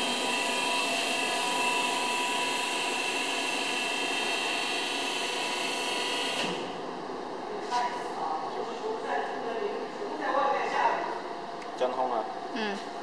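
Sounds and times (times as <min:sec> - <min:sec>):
mixer machine hissing and whining: 0:00.0 - 0:07.3.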